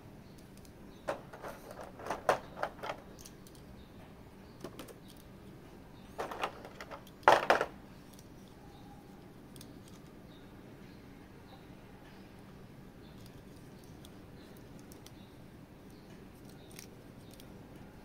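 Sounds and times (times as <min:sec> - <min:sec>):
small plastic clicks: 0:04.6 - 0:05.3, 0:09.5 - 0:10.1, 0:13.2 - 0:15.2, 0:15.9 - 0:17.6.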